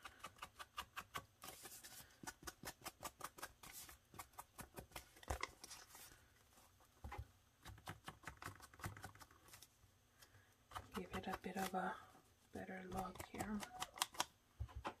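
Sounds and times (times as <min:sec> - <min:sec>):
foam tool scuffing paper: 0:01.4 - 0:06.3.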